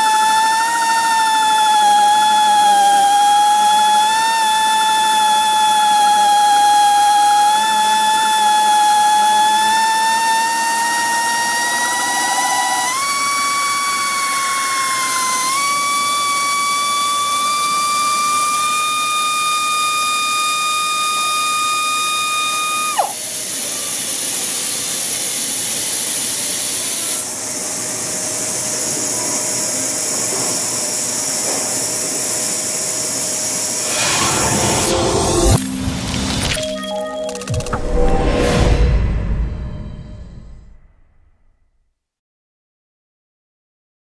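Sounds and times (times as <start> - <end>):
air drill high whine: 0.0 - 38.4.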